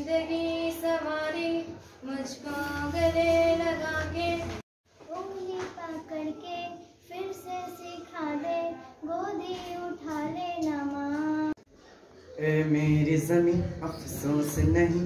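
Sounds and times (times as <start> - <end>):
girl singing unaccompanied: 0.0 - 11.6
boy's voice: 5.0 - 11.5.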